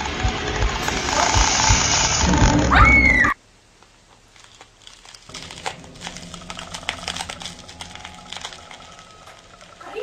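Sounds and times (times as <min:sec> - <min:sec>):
loud sound cutting off: 0:00.0 - 0:02.9
faint scattered crackles and clicks: 0:03.7 - 0:10.0.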